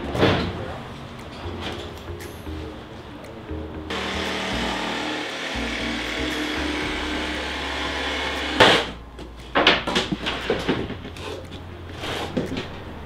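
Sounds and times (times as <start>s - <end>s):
power tool shaving wood: 3.9s - 9.0s
wooden knocks and clatters: 9.5s - 11.2s.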